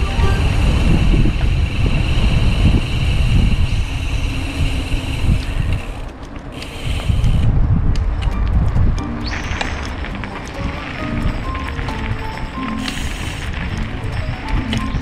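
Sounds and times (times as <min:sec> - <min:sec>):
steady high buzz: 0:00.0 - 0:07.6
wind buffeting microphone: 0:00.0 - 0:15.0.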